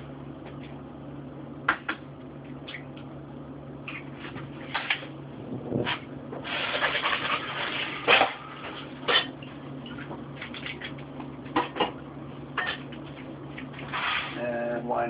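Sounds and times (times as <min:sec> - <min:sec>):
steady low hum: 0:00.0 - 0:15.0
rubbing or scraping: 0:05.7 - 0:08.8, 0:13.8 - 0:14.5.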